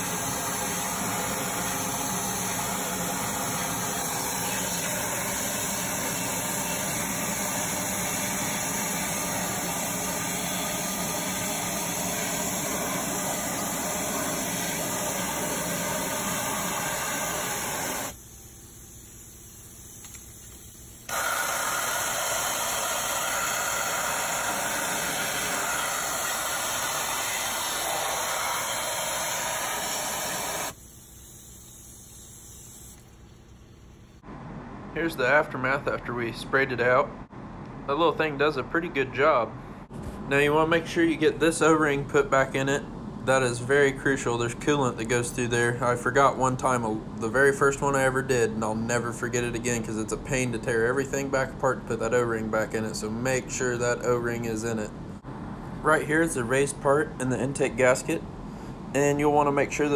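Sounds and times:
pressure washer spraying water: 0.0s - 18.2s, 18.8s - 33.0s.

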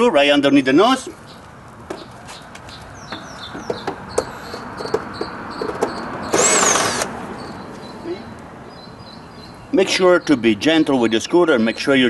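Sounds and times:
cordless drill running: 6.3s - 7.1s
drill bit clicking on screw: 6.3s - 7.1s.

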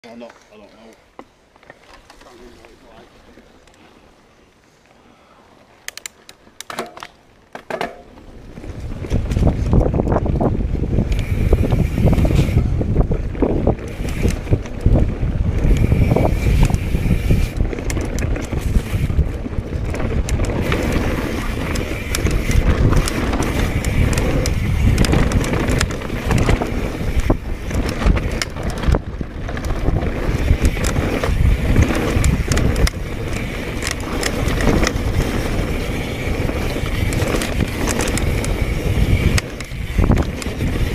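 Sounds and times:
bike knocking and rattling: 5.9s - 40.9s
wind buffeting microphone: 8.4s - 40.9s
tyres rumbling on dirt: 11.2s - 40.9s.

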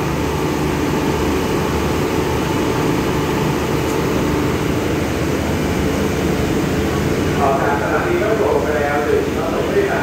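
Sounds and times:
train machinery rumble and hum: 0.0s - 10.0s.

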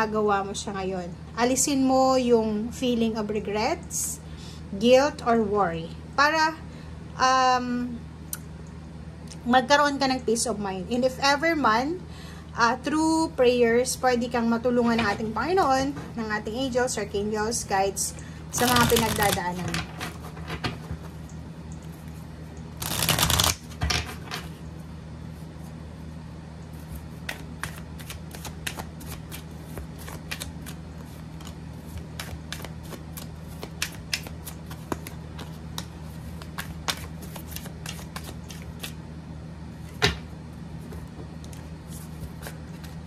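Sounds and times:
cards being shuffled: 18.6s - 20.3s, 22.8s - 24.1s, 26.8s - 39.0s, 40.9s - 43.0s.

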